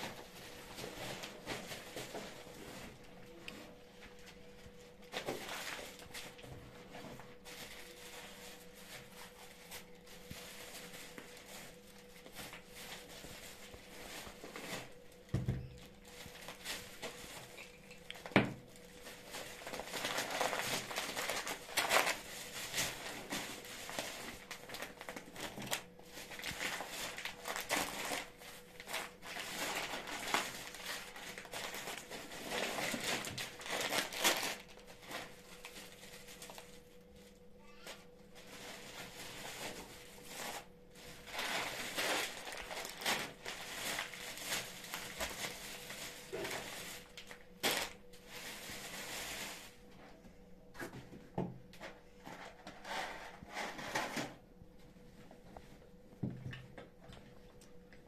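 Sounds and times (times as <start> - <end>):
plastic bags rustling: 0.0 - 50.0.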